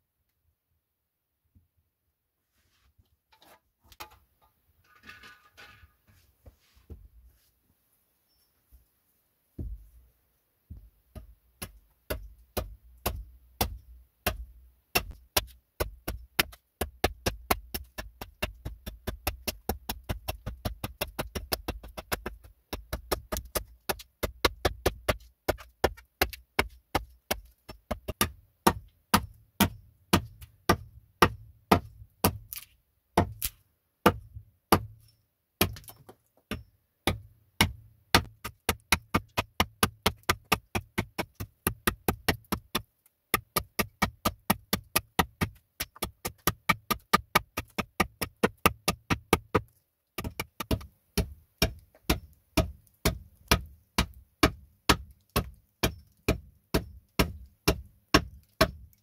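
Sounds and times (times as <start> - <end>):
hatchet chopping log: 11.1 - 35.0, 35.6 - 58.9.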